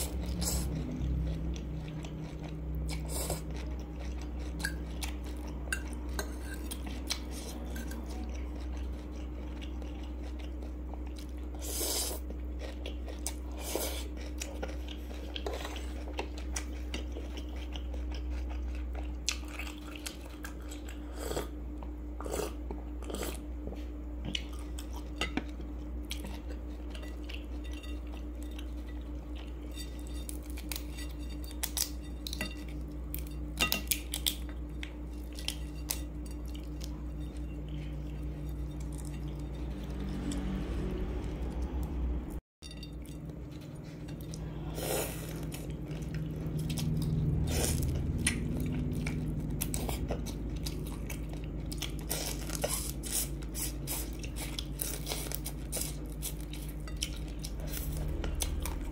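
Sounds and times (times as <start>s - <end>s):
chewing: 0.0s - 42.0s, 42.7s - 58.9s
steady low hum: 0.0s - 58.9s
fork scraping ceramic bowl: 26.6s - 32.7s.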